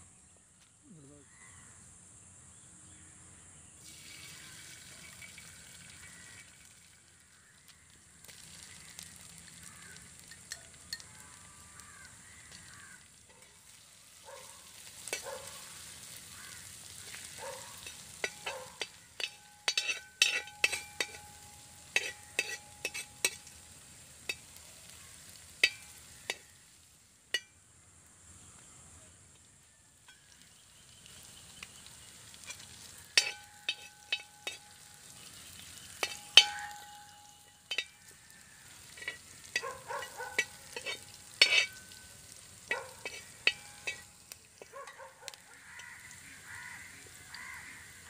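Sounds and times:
food sizzling in a pan: 0:03.8 - 0:28.8, 0:29.4 - 0:48.0
metal ladle clinking on pan: 0:17.8 - 0:23.6, 0:25.6 - 0:26.4, 0:27.3 - 0:27.6, 0:32.4 - 0:38.2, 0:38.8 - 0:45.4.

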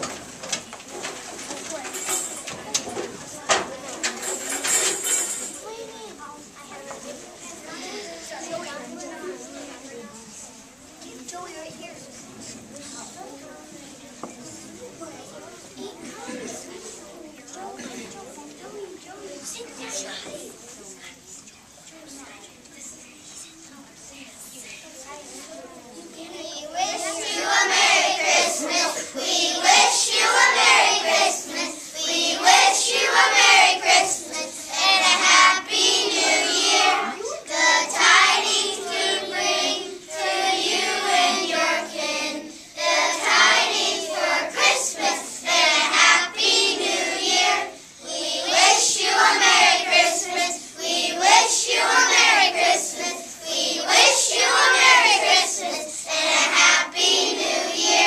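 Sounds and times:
young children singing: 0:22.9 - 0:58.0.

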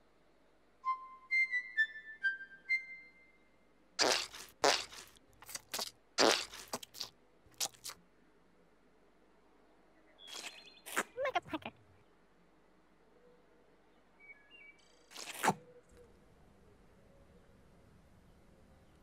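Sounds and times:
sponge squelching: 0:04.0 - 0:08.0, 0:10.3 - 0:11.7, 0:15.1 - 0:15.6.

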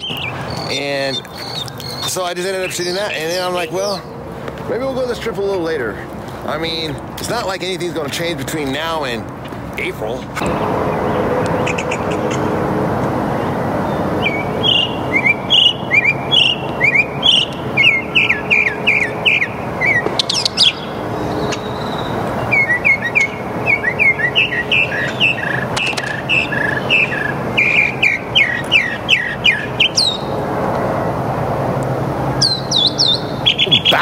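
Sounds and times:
mockingbird singing: 0:00.0 - 0:04.2, 0:09.8 - 0:12.5, 0:13.9 - 0:30.4, 0:32.4 - 0:34.0.

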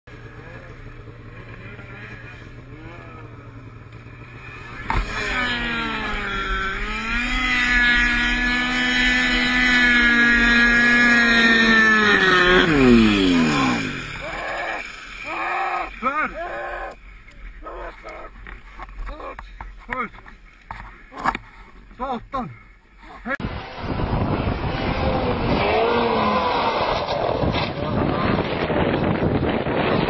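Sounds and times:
snowmobile engine revving: 0:00.1 - 0:30.0.

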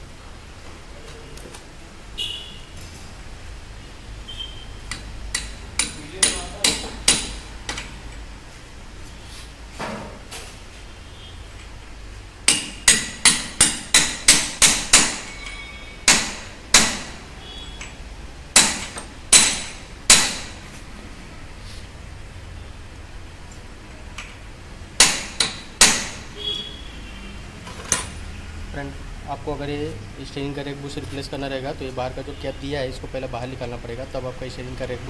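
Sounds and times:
hammer striking metal: 0:04.9 - 0:07.9, 0:12.4 - 0:20.6, 0:25.0 - 0:26.3.

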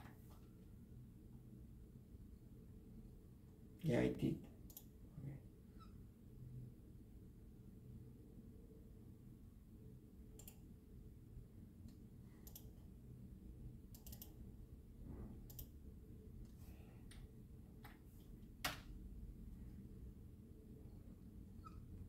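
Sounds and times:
faint low hum: 0:00.0 - 0:22.0
computer mouse clicking: 0:04.7 - 0:04.9, 0:10.3 - 0:10.7, 0:11.8 - 0:12.8, 0:13.9 - 0:14.4, 0:15.4 - 0:15.8.

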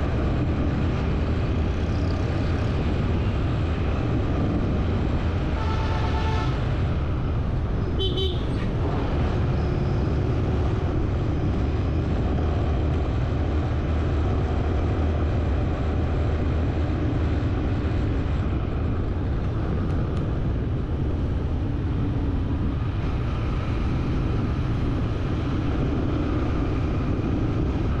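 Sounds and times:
road traffic rumble: 0:00.0 - 0:28.0
car horn toots: 0:05.6 - 0:06.6, 0:08.0 - 0:08.5.

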